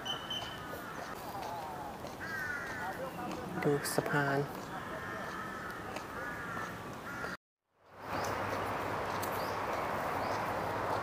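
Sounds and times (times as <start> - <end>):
outdoor background noise: 0.0 - 11.0
crow cawing: 0.6 - 1.2, 2.2 - 3.1, 4.7 - 7.4.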